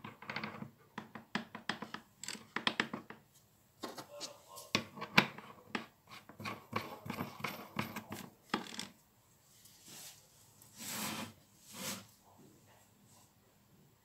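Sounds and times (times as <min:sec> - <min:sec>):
grinder swishing on floor: 0:09.8 - 0:12.1.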